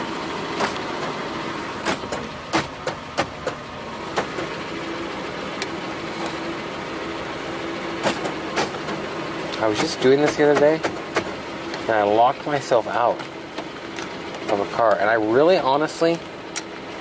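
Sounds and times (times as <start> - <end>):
power window motor hum: 0.0 - 11.8.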